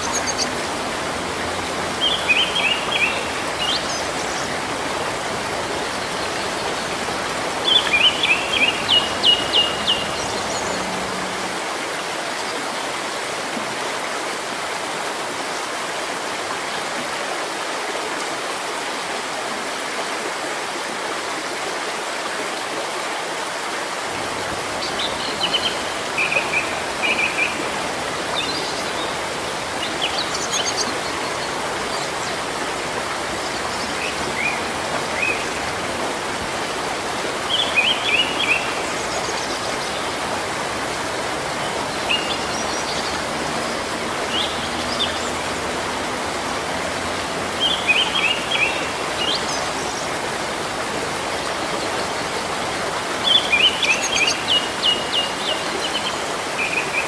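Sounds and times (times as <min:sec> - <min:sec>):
small birds chirping: 0:00.0 - 0:11.5
rain falling on foliage: 0:00.0 - 0:57.0.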